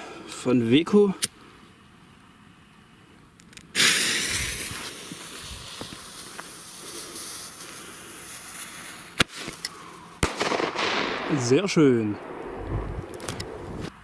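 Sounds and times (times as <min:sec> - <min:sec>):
firework hissing: 0:03.7 - 0:11.3.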